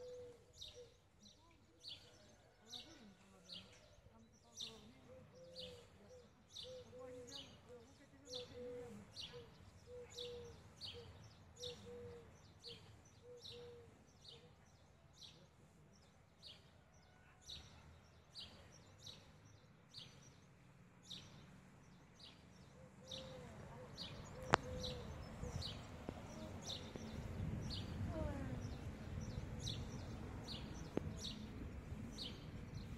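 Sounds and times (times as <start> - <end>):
small bird chirping: 17.6 - 32.9
lower bird call: 23.0 - 32.9.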